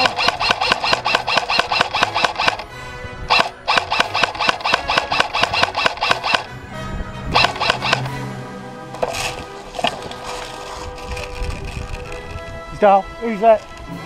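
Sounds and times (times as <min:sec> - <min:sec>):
airsoft rifle firing bursts: 0:00.0 - 0:02.7, 0:03.3 - 0:06.5, 0:07.4 - 0:08.1.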